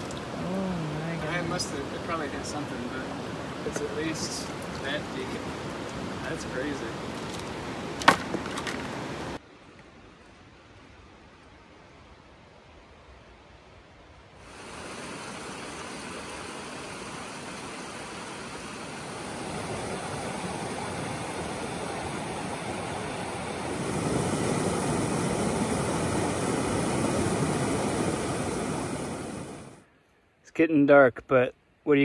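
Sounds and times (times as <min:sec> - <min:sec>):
waterfall rushing: 0:00.0 - 0:09.4, 0:14.4 - 0:29.8.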